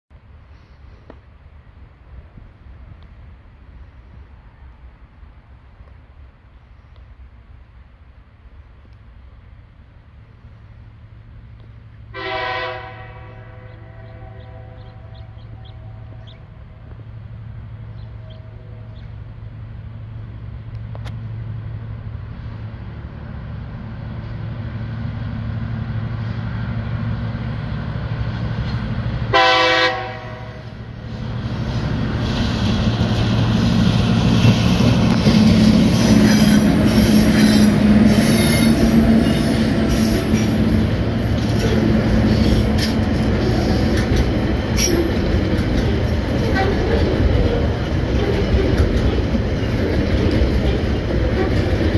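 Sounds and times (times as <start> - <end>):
diesel locomotive engine hum: 0.1 - 51.9
train horn blast: 12.1 - 16.9, 18.0 - 19.0, 29.3 - 30.8, 46.4 - 47.2
wagons rumbling and clattering past: 30.9 - 51.9.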